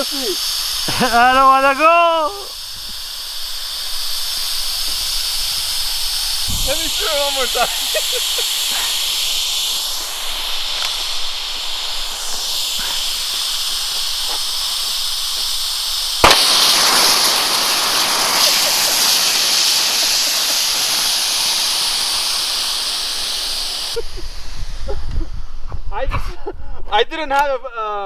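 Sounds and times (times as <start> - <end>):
gas hissing from tank: 0.0 - 25.7
rifle shot: 16.2 - 19.7.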